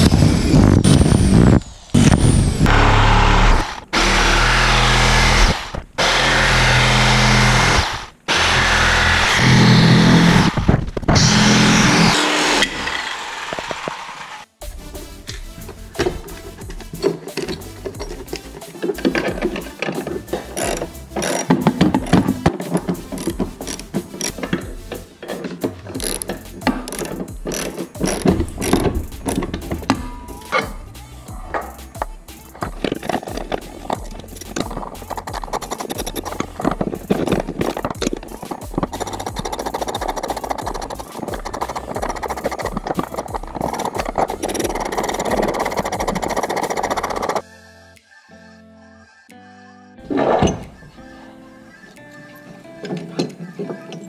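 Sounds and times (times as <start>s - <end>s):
electric drill boring through wood: 0.0s - 14.4s, 26.0s - 30.0s, 32.8s - 47.4s
electric jigsaw sawing wood: 2.7s - 14.4s
ratchet wrench clicking: 19.0s - 25.1s, 26.0s - 29.9s, 31.6s - 47.4s.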